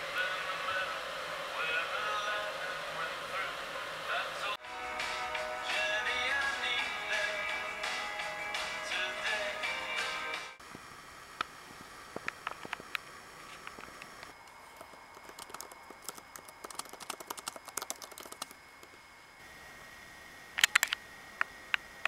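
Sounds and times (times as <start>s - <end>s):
typing on a laptop keyboard: 14.7s - 19.0s.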